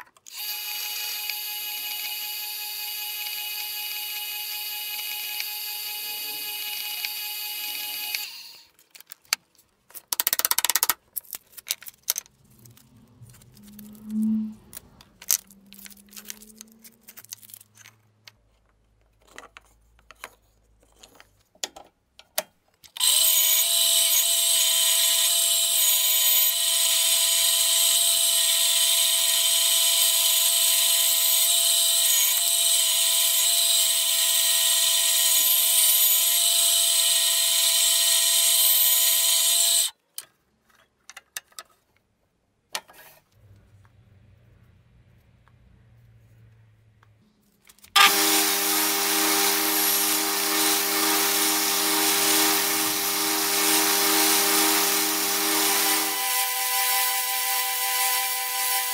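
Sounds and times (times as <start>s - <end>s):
drill press drilling wood: 0.3s - 8.6s, 23.0s - 39.9s, 48.0s - 58.9s
bandsaw cutting: 0.3s - 8.7s, 23.0s - 39.9s, 48.0s - 58.9s.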